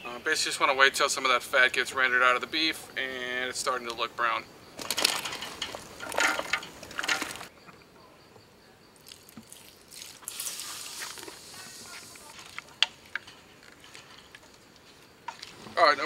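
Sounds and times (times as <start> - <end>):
vegetables clattering into metal pot: 4.8 - 7.5
soft hiss: 8.6 - 16.0.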